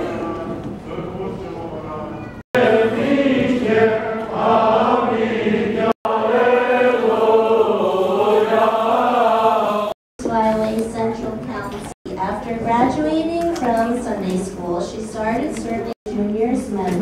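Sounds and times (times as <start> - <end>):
liturgical chanting: 0.0 - 10.0.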